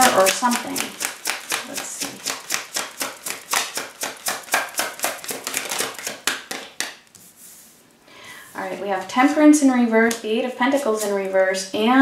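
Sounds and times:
cards being shuffled: 0.0 - 7.4.

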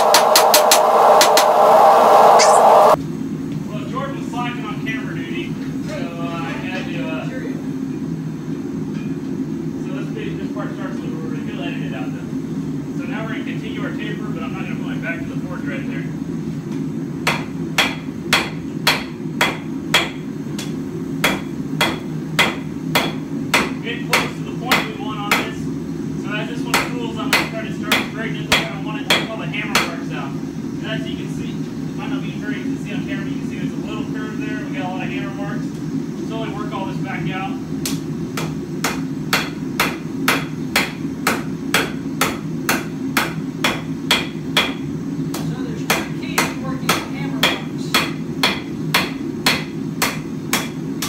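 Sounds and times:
gas forge low hum: 0.0 - 5.6
gas forge burner roaring: 0.0 - 51.0
hammer striking steel on anvil: 17.2 - 25.5, 37.9 - 44.8, 45.9 - 50.8.

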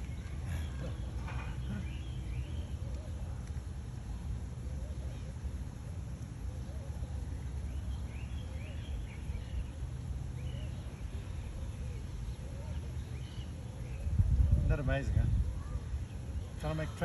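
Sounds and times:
faint bird chirps: 6.4 - 17.0.

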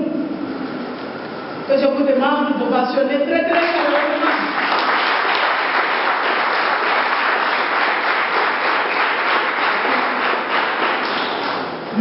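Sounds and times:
audience applauding: 3.6 - 12.0.

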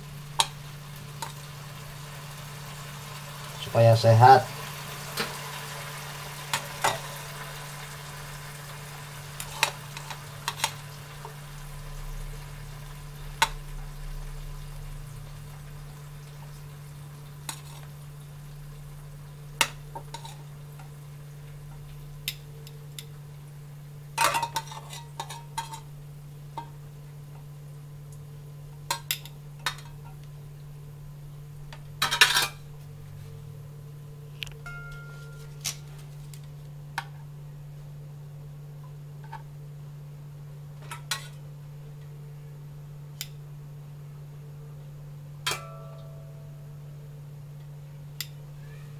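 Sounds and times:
low hum: 4.6 - 24.2, 41.4 - 48.9.

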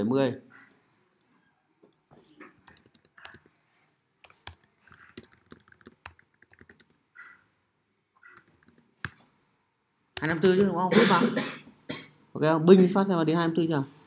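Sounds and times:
faint typing on keyboard: 0.5 - 3.6, 4.2 - 7.4, 8.2 - 9.4.

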